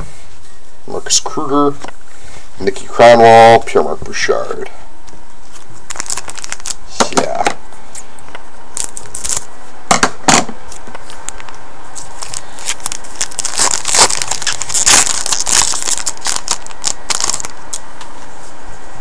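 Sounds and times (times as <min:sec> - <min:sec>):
foil wrapper tearing and crinkling: 0:05.5 - 0:06.9, 0:08.7 - 0:09.5, 0:12.0 - 0:17.8.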